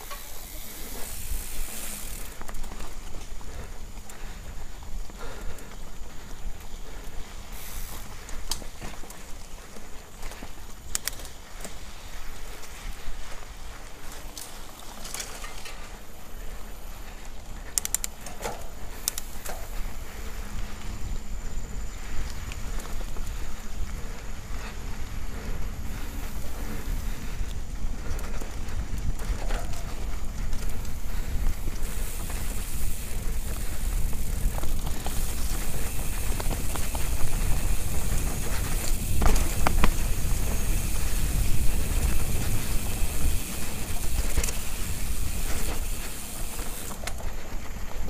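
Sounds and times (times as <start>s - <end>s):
bike rattling clicks: 0.0s - 48.0s
low rumble of bike ride: 0.0s - 48.0s
tyre noise on dirt: 0.0s - 48.0s.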